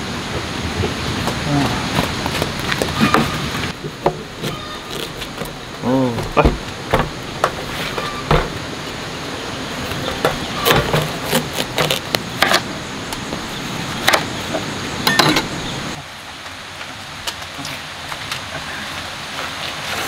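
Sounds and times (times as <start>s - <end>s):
knife cutting watermelon: 10.6s - 12.7s.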